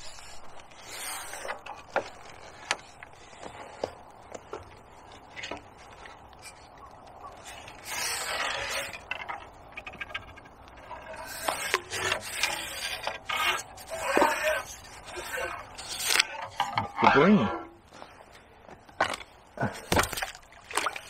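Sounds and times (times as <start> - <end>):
fishing pole rubbing rustle: 0.0 - 3.8, 7.3 - 16.7.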